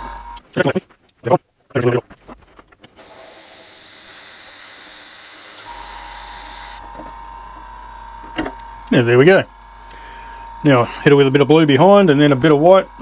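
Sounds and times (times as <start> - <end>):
airbrush spraying hiss: 3.0 - 6.8
low hum with thin tone: 5.7 - 13.0.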